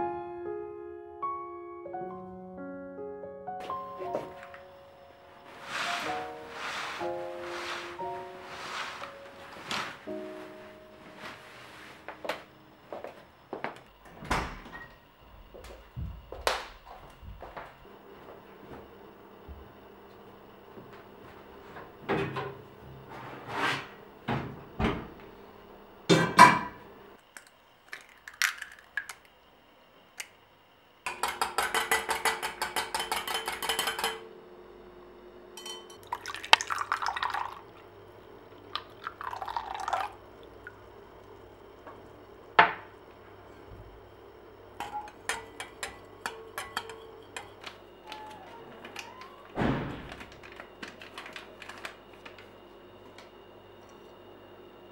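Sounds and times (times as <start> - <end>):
glass bowl and utensils clinking: 31.1 - 34.2, 35.6 - 36.4, 44.8 - 47.7
liquid pouring into bowl: 36.0 - 37.9, 38.7 - 40.7
wire whisk beating against glass: 44.8 - 47.7.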